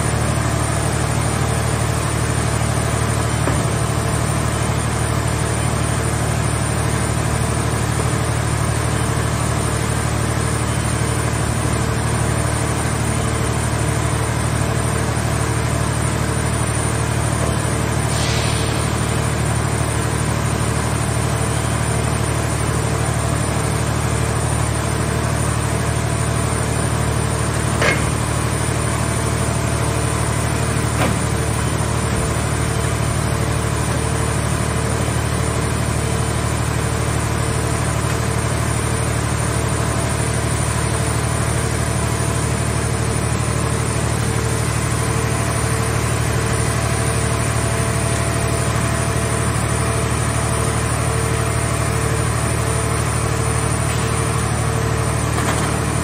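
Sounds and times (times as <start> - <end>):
hydraulic power unit humming: 0.0 - 56.0
sharp knocks: 27.8 - 28.2.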